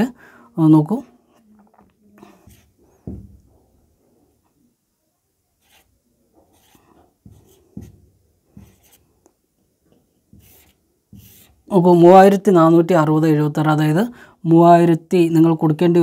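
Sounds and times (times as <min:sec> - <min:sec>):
marker writing on whiteboard: 0:02.2 - 0:03.2, 0:05.6 - 0:09.2, 0:09.9 - 0:11.7.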